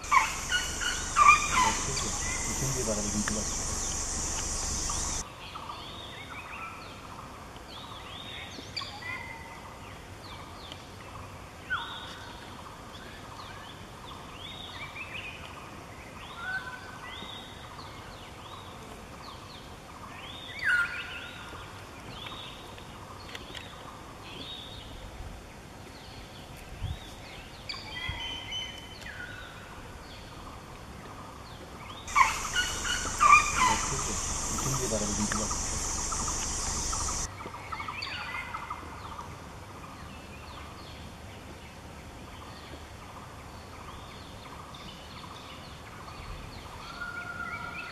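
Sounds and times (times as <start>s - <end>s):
birds calling: 0.0s - 5.2s, 32.0s - 37.3s.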